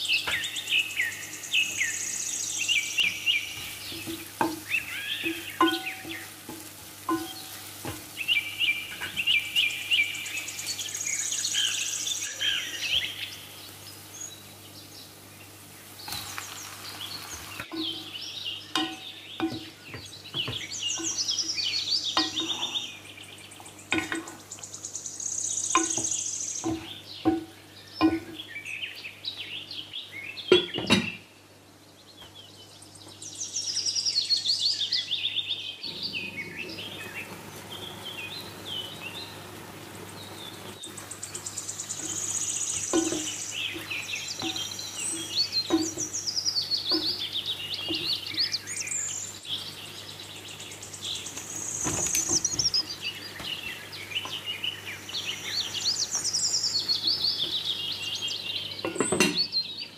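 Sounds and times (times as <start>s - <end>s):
food sauteing: 0.0s - 28.5s, 35.8s - 59.0s
birds chirping: 0.0s - 59.9s
wooden spatula scraping frying pan: 3.6s - 8.2s, 22.2s - 22.9s
glass lid knocking on pan: 4.0s - 8.0s, 18.8s - 21.1s, 42.9s - 44.6s.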